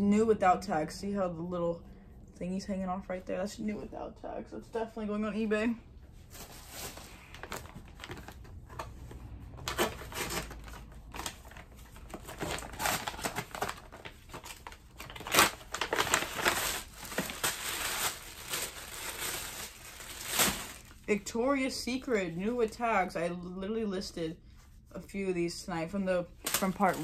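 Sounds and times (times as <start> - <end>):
paper and plastic packaging crinkling: 6.2 - 21.3, 26.4 - 27.0.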